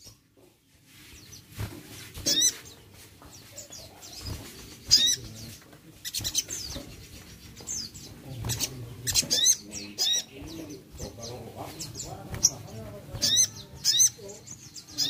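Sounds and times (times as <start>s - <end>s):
bird chirping: 0.0s - 15.0s
wing flutters: 4.0s - 14.1s.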